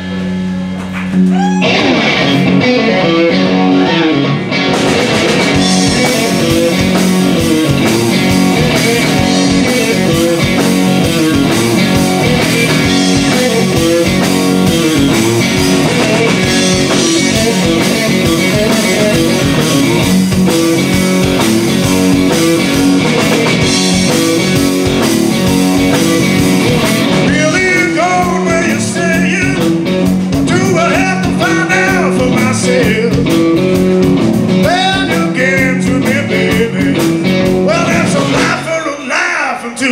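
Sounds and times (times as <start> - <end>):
blues-rock band playing: 0.0 - 39.2
man singing: 5.8 - 6.8, 12.8 - 14.3, 27.2 - 29.8, 30.4 - 33.6, 34.6 - 39.9.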